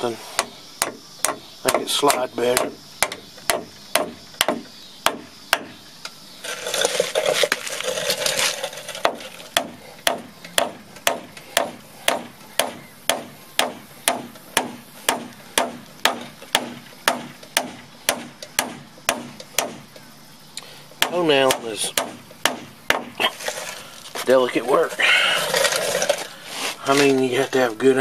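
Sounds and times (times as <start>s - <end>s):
hammer striking nail into wood: 0.4s - 5.7s, 9.0s - 19.8s, 21.0s - 23.2s
rustling: 6.4s - 12.9s, 23.1s - 28.0s.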